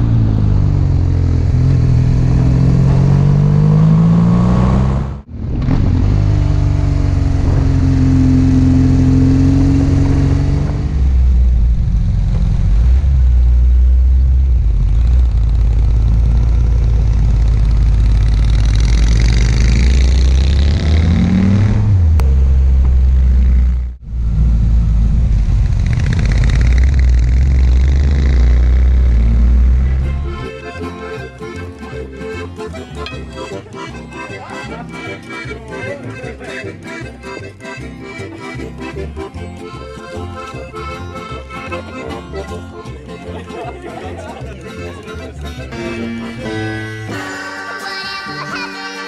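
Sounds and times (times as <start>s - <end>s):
motorcycle engine running: 0.0s - 4.6s, 5.2s - 30.5s.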